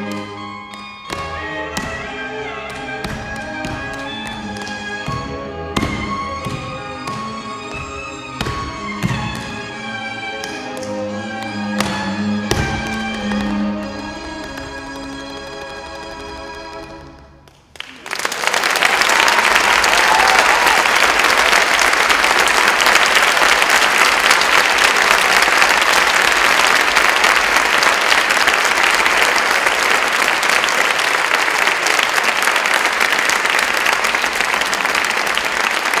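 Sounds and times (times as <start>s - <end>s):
audience applauding: 17.6s - 36.0s.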